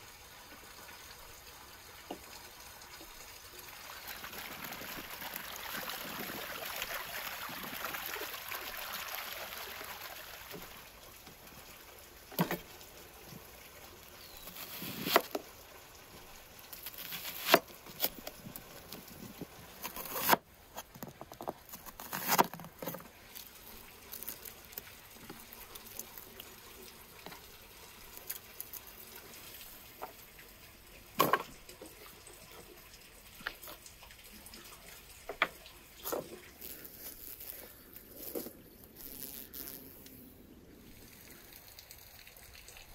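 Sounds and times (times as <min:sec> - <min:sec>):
water gushing over hands: 0:04.0 - 0:10.7
knife slicing onion: 0:14.6 - 0:15.3, 0:16.9 - 0:18.2.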